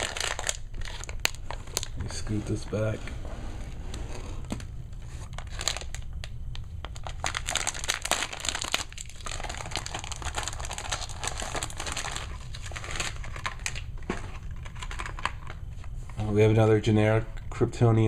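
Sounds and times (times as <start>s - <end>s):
plastic and foil packaging crinkling: 0.0s - 2.6s, 5.0s - 16.4s.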